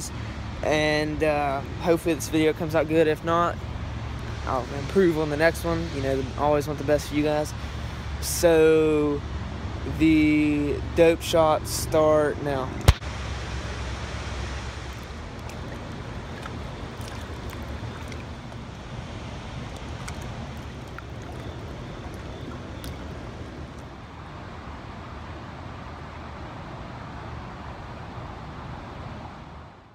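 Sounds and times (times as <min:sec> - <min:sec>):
river water rushing: 0:12.9 - 0:24.8.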